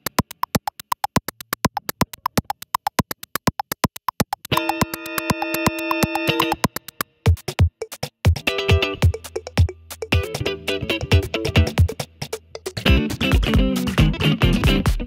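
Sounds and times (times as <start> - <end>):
fast sharp electronic clicks: 0.0 - 8.4.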